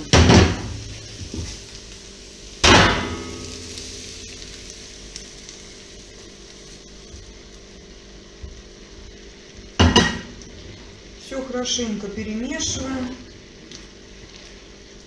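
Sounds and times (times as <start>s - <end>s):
food sizzling in pan: 0.0s - 15.0s.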